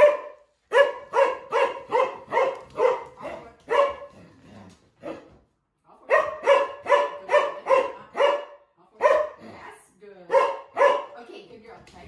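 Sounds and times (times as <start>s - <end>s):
dog barking: 0.0s - 4.2s, 5.0s - 5.4s, 6.1s - 9.5s, 10.3s - 11.2s.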